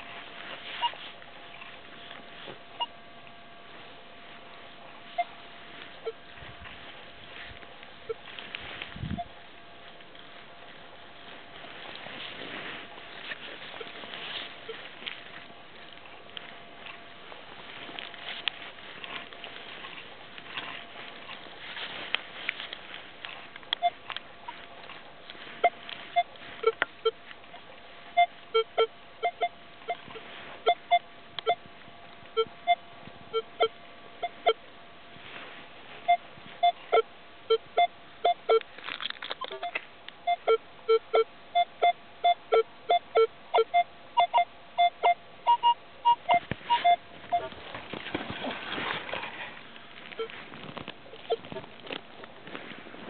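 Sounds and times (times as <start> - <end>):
metal detector beeping: 0.0 - 1.7, 2.8 - 3.0, 5.1 - 6.8, 8.0 - 8.5, 13.7 - 14.9, 23.7 - 24.7, 25.4 - 31.7, 32.3 - 34.6, 36.0 - 38.7, 39.4 - 47.6, 50.1 - 50.4, 51.1 - 51.6.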